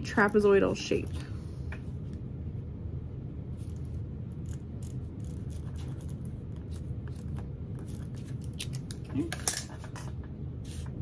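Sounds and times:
steady low hum: 0:00.0 - 0:11.0
pen scratching on paper: 0:04.8 - 0:08.7.

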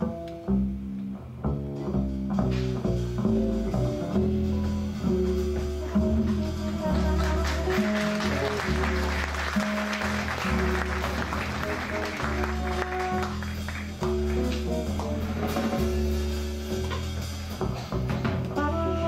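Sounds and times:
double bass plucked: 0:00.0 - 0:19.0
drum kit with cymbals: 0:00.0 - 0:19.0.

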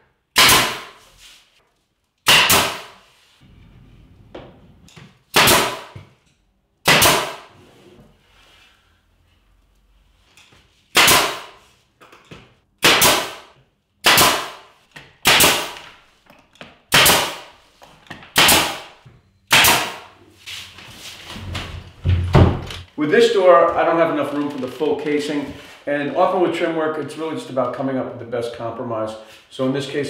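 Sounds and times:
nail gun cracks: 0:12.8 - 0:13.4, 0:14.0 - 0:14.6, 0:15.2 - 0:15.9, 0:18.3 - 0:18.9.

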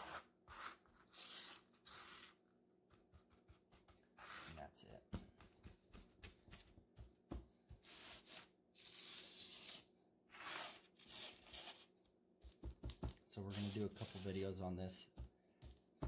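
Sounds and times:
hand brushing fiber substrate: 0:13.4 - 0:14.5.

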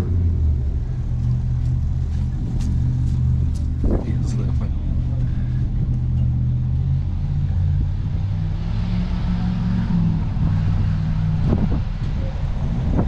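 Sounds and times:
vehicle engine idling: 0:00.0 - 0:08.4.

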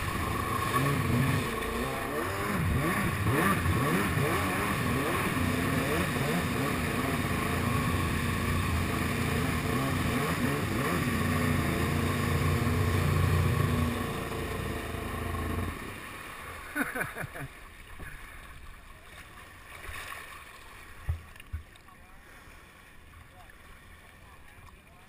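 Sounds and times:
jet ski engine running: 0:00.0 - 0:18.2
water splashing around hull: 0:00.0 - 0:25.0.

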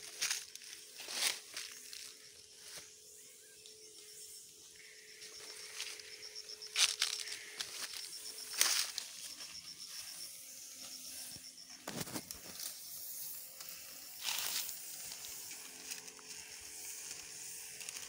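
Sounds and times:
sprayer nozzle hissing: 0:10.1 - 0:18.0.

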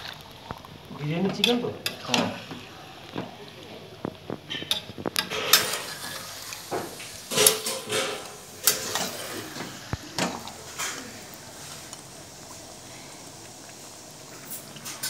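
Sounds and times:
metal spatula scraping metal pan: 0:04.6 - 0:06.6, 0:07.3 - 0:09.5.

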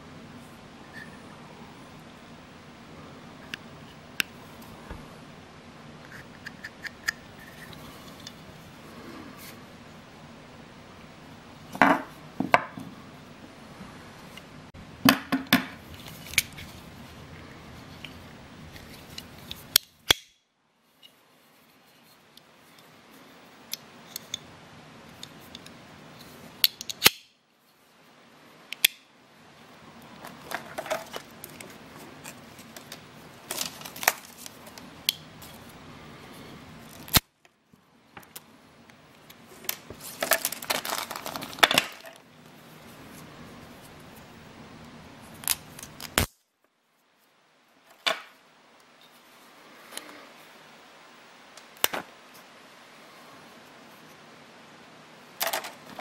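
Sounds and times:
metallic clicks and snaps: 0:26.6 - 0:27.3, 0:28.7 - 0:29.0.

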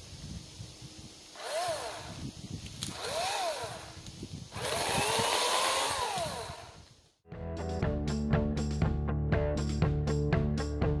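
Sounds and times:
electric chainsaw motor whining: 0:01.3 - 0:07.0.

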